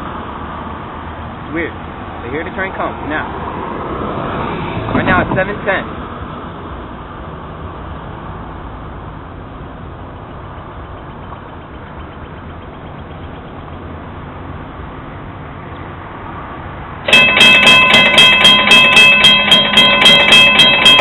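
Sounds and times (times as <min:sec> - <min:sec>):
crossing warning bell ringing: 0:17.0 - 0:21.0.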